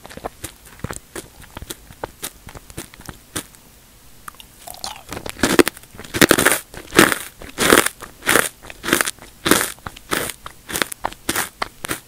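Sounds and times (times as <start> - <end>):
mouth clicks: 4.2 - 5.6
chips crunching: 4.3 - 12.0.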